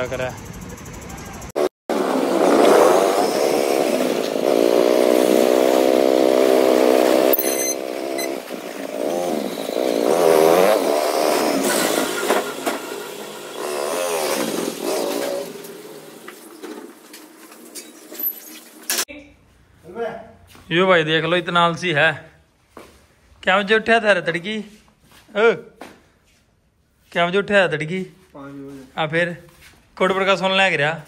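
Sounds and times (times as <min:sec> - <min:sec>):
vehicle engine revving: 0:01.5 - 0:16.0.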